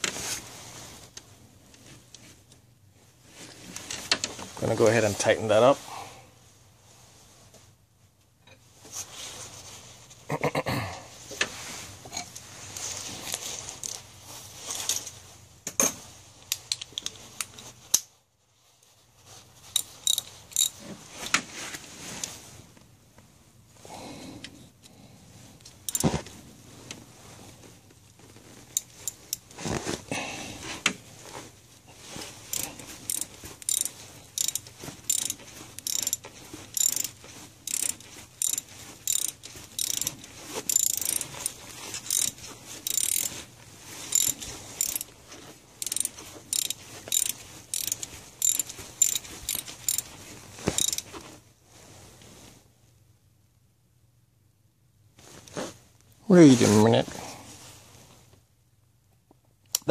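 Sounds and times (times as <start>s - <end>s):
ratchet wrench clicking: 19.8s - 20.8s, 32.5s - 43.3s, 44.1s - 45.1s, 45.8s - 50.1s, 50.7s - 51.0s.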